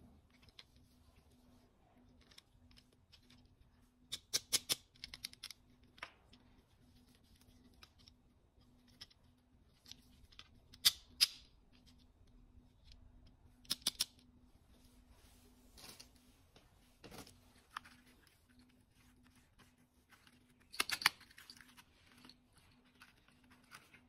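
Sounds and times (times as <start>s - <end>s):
sunglasses hinges clicking: 20.7s - 21.7s.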